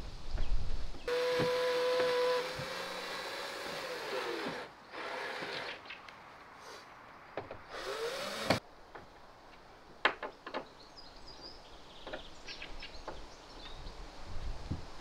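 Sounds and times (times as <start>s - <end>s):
cordless drill motor spinning: 1.1s - 5.7s, 7.7s - 8.6s.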